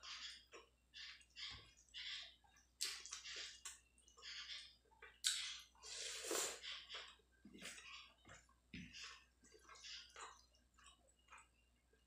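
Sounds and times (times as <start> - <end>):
person chewing: 4.8 - 12.0.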